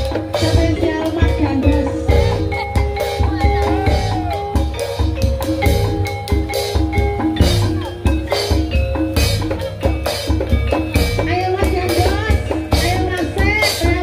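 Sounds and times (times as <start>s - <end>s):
pitched percussion melody: 0.0s - 14.0s.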